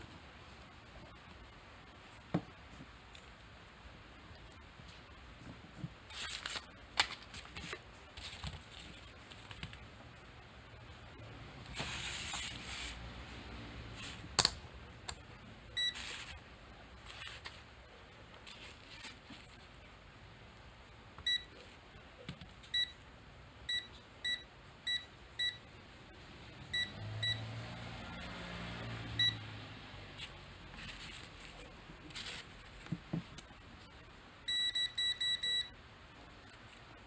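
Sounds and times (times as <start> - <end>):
multimeter short beeps: 34.5 - 35.7.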